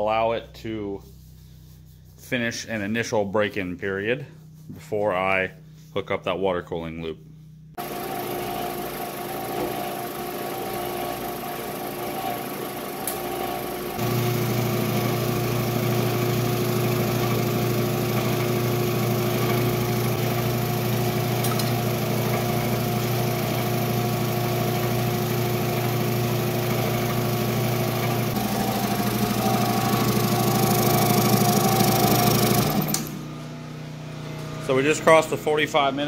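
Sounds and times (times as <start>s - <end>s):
air compressor pump running: 7.8s - 35.6s
generator running: 7.8s - 36.0s.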